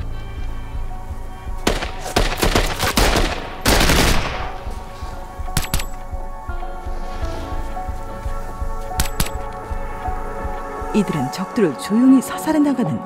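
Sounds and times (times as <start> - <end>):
rifle gunfire: 1.7 - 4.6.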